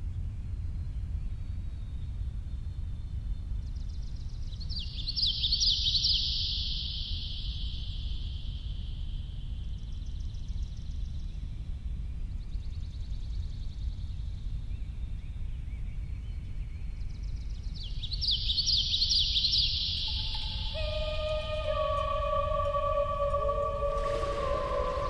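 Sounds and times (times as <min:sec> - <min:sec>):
low rumbling drone: 0:19.7 - 0:25.0.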